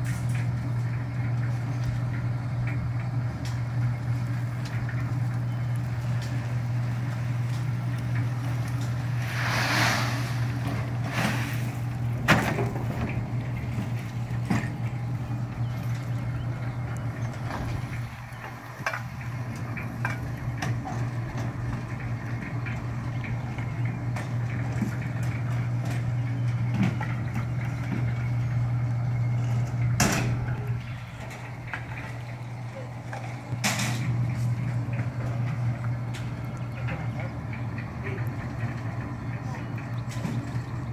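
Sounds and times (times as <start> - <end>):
engine humming: 0.0 - 40.9
short hiss: 9.2 - 10.4.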